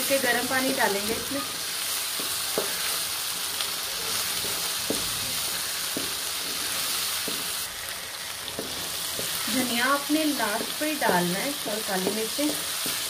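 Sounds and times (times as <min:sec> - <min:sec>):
beans sizzling in oil: 0:00.0 - 0:13.0
wooden spatula knocking pan: 0:08.5 - 0:13.0.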